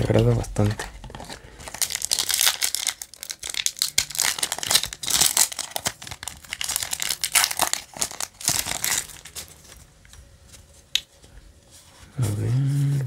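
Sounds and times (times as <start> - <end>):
foil wrapper tearing and crinkling: 0.0 - 9.8.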